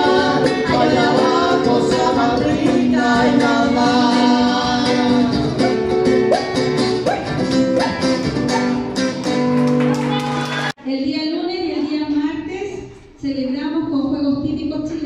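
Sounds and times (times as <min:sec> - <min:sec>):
woman singing folk song: 0:00.0 - 0:05.7
strummed acoustic guitar: 0:00.0 - 0:10.7.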